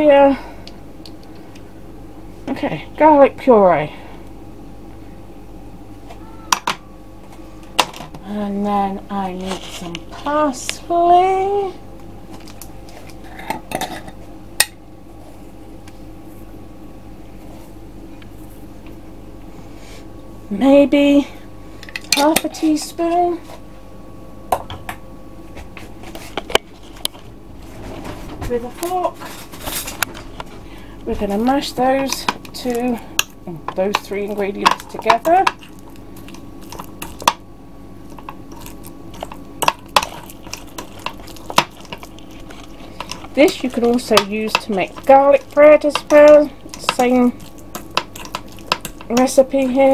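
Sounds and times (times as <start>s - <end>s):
steady low hum: 0.0s - 49.9s
fork mashing butter: 31.8s - 37.4s, 38.0s - 49.9s.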